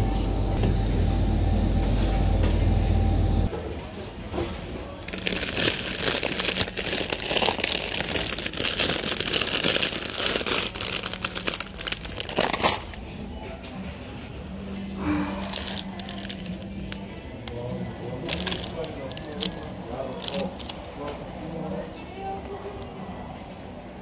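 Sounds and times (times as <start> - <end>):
plastic chip bags crinkling: 5.0 - 13.0, 15.4 - 17.1, 18.1 - 20.8.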